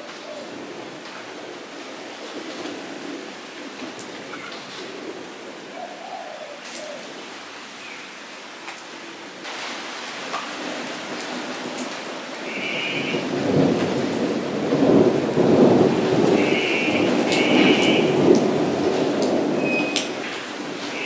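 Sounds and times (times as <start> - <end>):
rain on wet pavement: 0.0 - 21.0
water drips ticking: 17.3 - 20.6.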